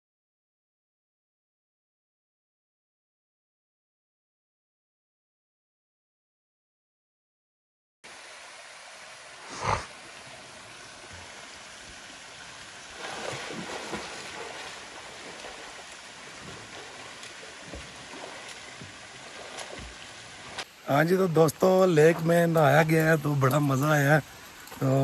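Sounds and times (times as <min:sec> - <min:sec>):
water trickling: 0:08.1 - 0:25.0
swimming strokes splashing water: 0:11.0 - 0:20.8.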